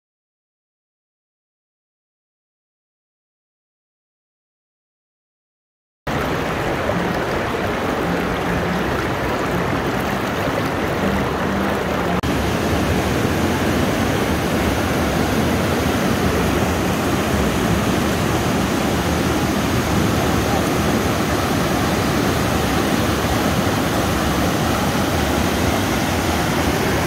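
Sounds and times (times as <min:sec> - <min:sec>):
river rushing over rapids: 0:06.1 - 0:27.0.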